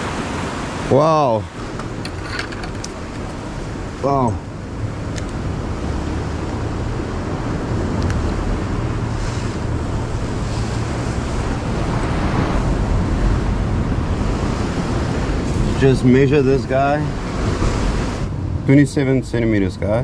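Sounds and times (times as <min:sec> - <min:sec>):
ocean surf breaking on rocks: 0:00.0 - 0:04.7, 0:08.3 - 0:18.6
wind buffeting microphone: 0:00.0 - 0:20.0.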